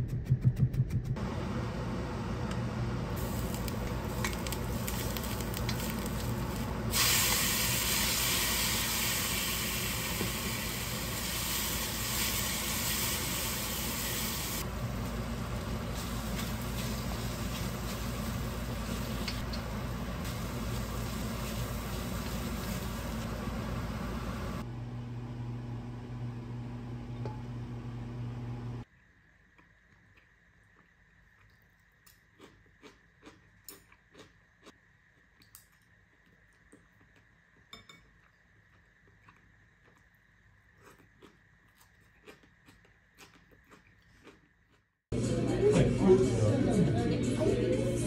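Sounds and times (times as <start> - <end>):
food sizzling in a wok: 3.2 - 24.6.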